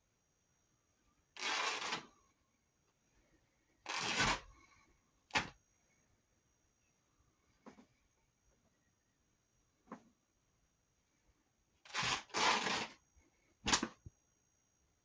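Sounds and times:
fabric ripping: 0:11.9 - 0:13.0.

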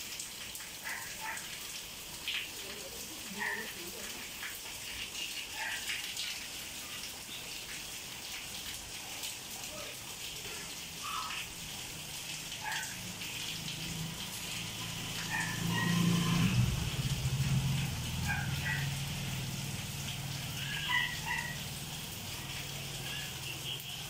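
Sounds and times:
steady rain falling: 0:00.0 - 0:24.0
vehicle engine hum: 0:13.1 - 0:23.8.

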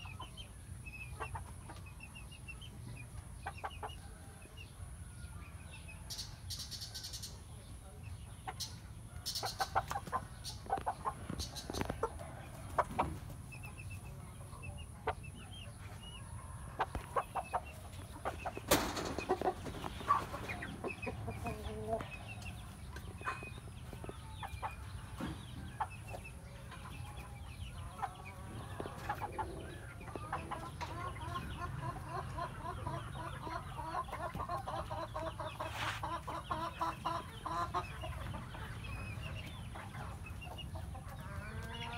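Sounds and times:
chickens clucking: 0:00.0 - 0:41.9
knocks and scrapes: 0:18.3 - 0:20.9.

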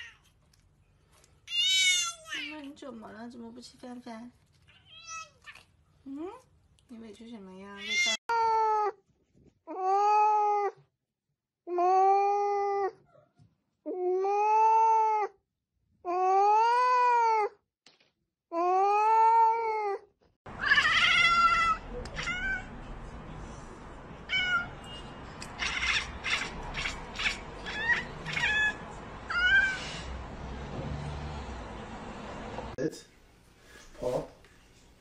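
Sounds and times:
cat meowing: 0:01.5 - 0:02.5, 0:20.6 - 0:22.8, 0:24.2 - 0:30.1
cat chirping: 0:20.6 - 0:22.8, 0:24.2 - 0:30.1.

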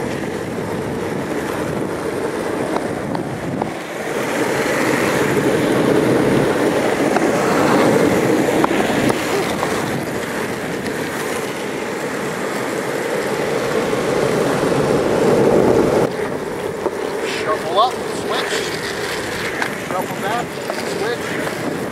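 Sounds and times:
skateboard wheels rolling on asphalt: 0:00.0 - 0:21.9.

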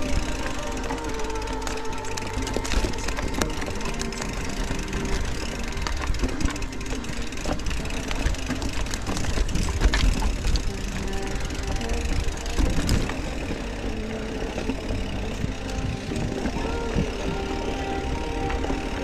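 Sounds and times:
bike clicks and rattles: 0:00.0 - 0:19.0
wind rumble on microphone: 0:00.0 - 0:19.0.

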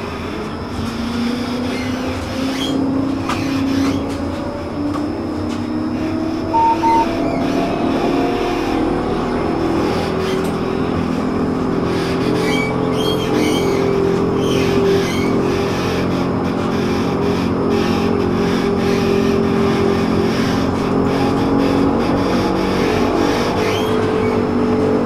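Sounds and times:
tram running on rails: 0:00.0 - 0:25.0
short high beeps: 0:06.5 - 0:07.1.

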